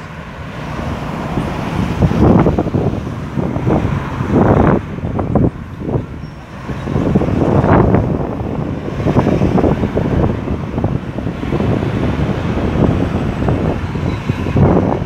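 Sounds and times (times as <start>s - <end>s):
vehicles passing by: 0.0s - 15.0s.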